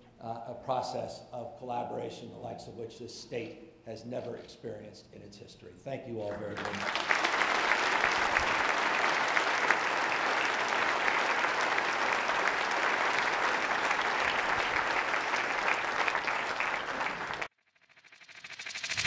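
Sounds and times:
audience applauding: 6.4s - 17.5s.

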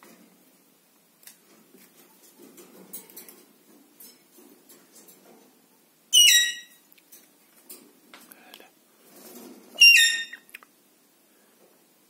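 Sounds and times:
soft clicks and shuffling: 0.0s - 5.7s, 6.9s - 9.8s
parakeet call: 6.1s - 6.8s, 9.8s - 10.5s.

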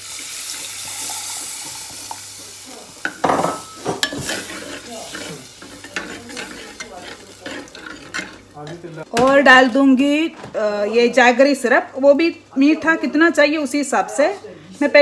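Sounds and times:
liquid sizzling in hot pot: 0.0s - 9.1s
metal spoon scraping clay pot: 4.0s - 8.8s.

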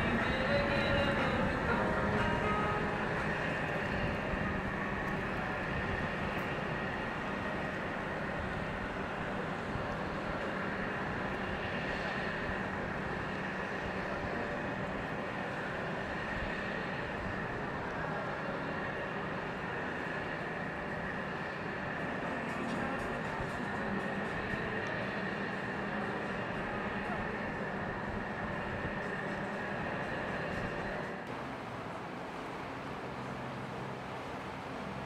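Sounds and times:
faint high whine: 0.0s - 35.0s
marine diesel engines droning: 0.0s - 35.0s
churning water: 31.2s - 35.0s.

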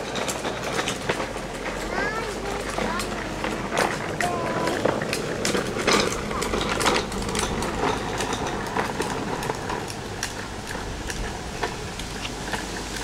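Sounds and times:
footsteps on sidewalk: 0.0s - 13.0s
wind buffeting microphone: 0.9s - 13.0s.

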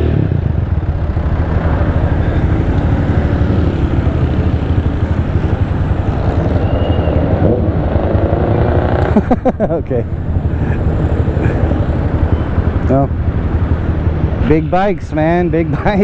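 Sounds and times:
motorcycle engine rumbling: 0.0s - 16.0s.

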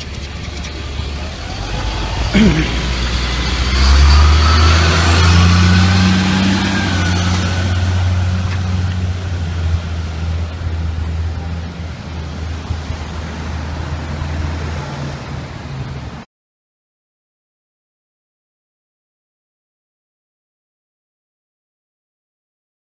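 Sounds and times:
tow truck diesel engine passing: 0.0s - 16.2s
city traffic noise: 0.0s - 16.3s.

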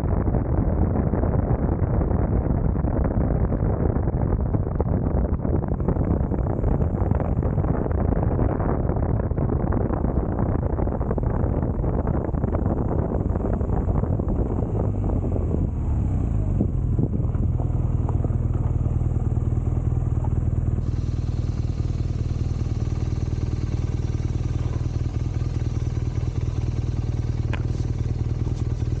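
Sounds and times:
motorcycle engine idling: 5.6s - 9.0s, 9.8s - 29.0s.

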